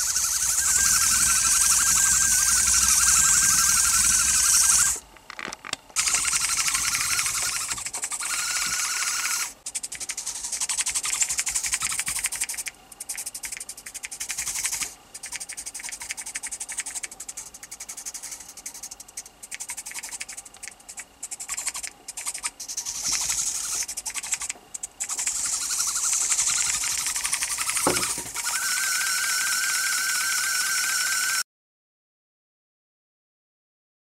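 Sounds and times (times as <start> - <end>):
toy motor buzzing: 0.0 - 5.0, 6.0 - 31.4.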